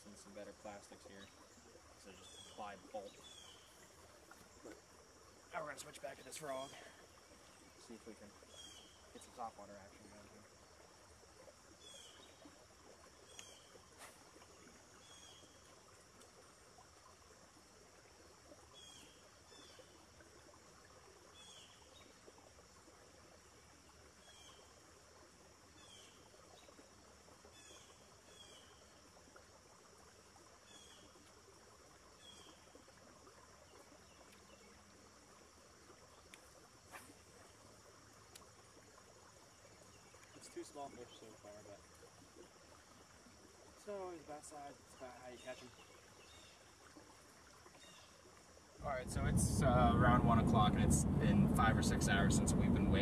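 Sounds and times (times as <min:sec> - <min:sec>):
faint click: 0:36.3 - 0:37.1.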